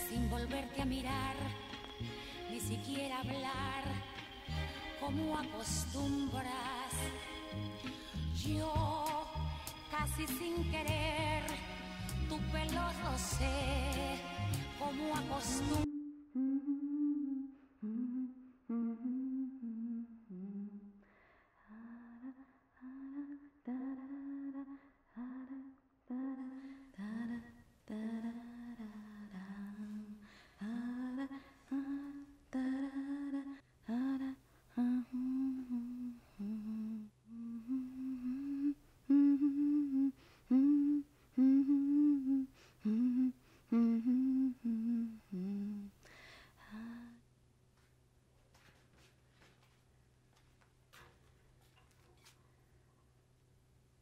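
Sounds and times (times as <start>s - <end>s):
woman humming: 15.6s - 21.0s, 21.7s - 47.2s.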